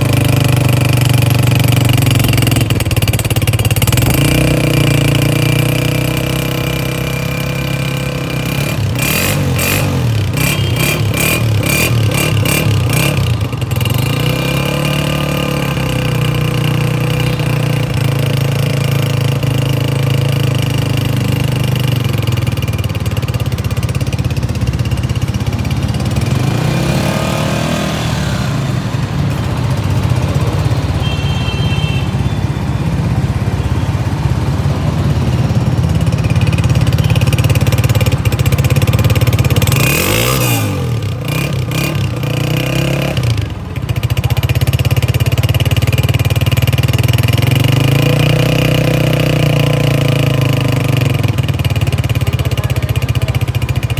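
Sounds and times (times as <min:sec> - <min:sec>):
motorcycle engine idling: 0:00.0 - 0:27.7, 0:28.6 - 0:53.9
engine revving: 0:03.8 - 0:20.9, 0:26.0 - 0:30.9, 0:37.8 - 0:43.6, 0:47.2 - 0:51.5.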